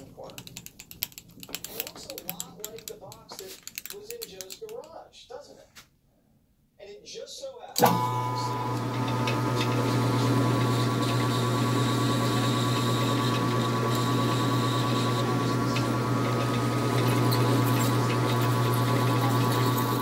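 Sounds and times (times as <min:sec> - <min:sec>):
metal lathe humming: 0:07.8 - 0:20.0.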